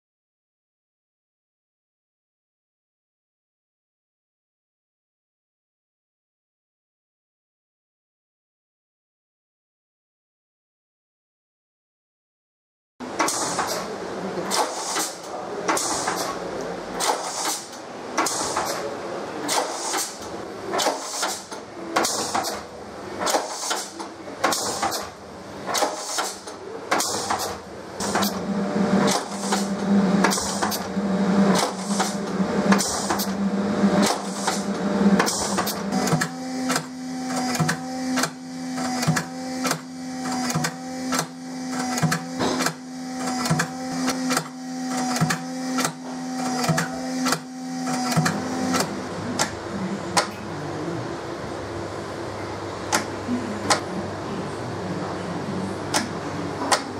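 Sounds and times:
steady machine hum: 13.0 - 56.9.

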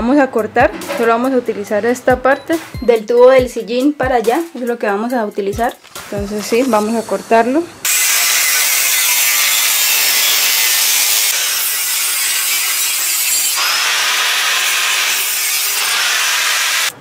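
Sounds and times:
angle grinder cutting metal: 7.8 - 17.0.

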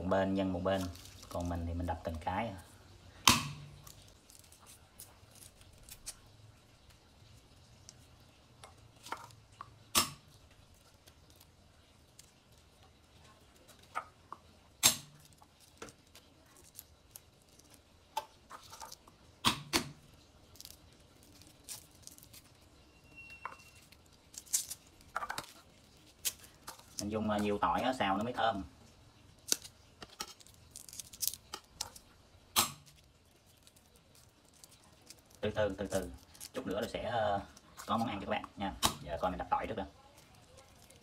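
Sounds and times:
clicks and rustles of peeling: 0.2 - 2.7, 3.5 - 22.8, 23.4 - 41.0
garlic smashed on wooden board: 3.2 - 3.7, 9.9 - 10.3, 14.8 - 15.2, 19.4 - 20.0, 32.6 - 32.9, 38.7 - 39.2.

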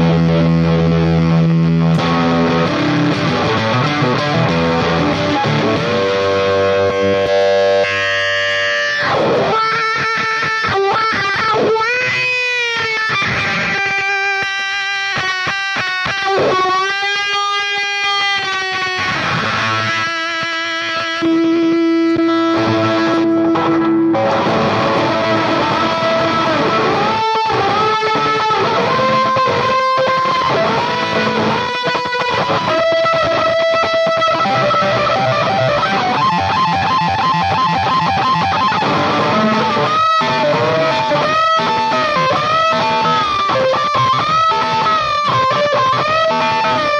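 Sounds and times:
crunchy electric guitar lead: 0.0 - 46.9.

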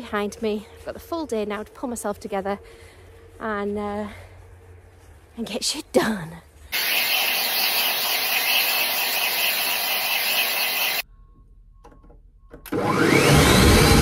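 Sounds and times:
food processor blending: 6.8 - 11.0, 12.7 - 14.0
hair dryer blowing: 6.8 - 11.0, 12.8 - 14.0.

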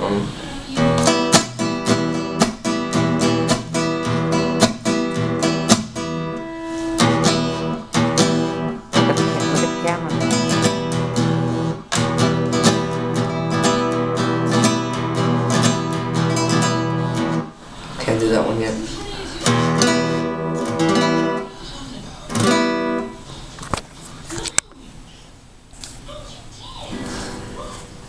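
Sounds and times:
classical guitar strumming: 0.8 - 17.6, 19.4 - 21.6, 22.3 - 23.3.

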